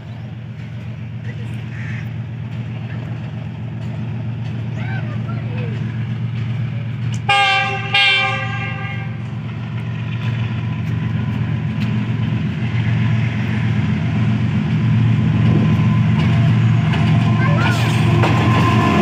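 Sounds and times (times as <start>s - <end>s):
locomotive horn blasts: 7.2s - 9.3s.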